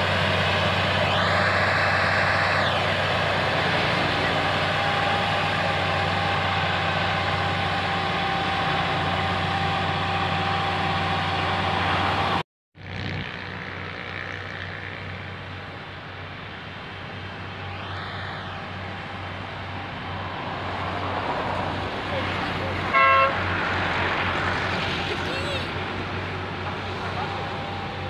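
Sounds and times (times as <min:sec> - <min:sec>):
diesel engine running: 0:00.0 - 0:28.0.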